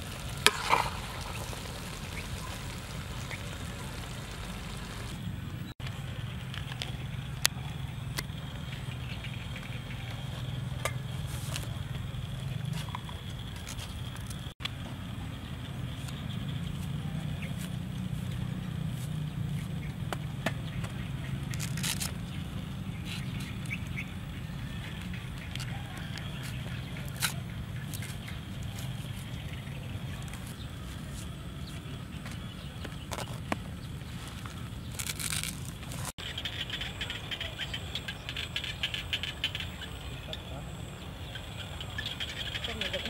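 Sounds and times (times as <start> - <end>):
frogs and insects clicking chorus: 6.1 - 14.5, 36.2 - 43.0.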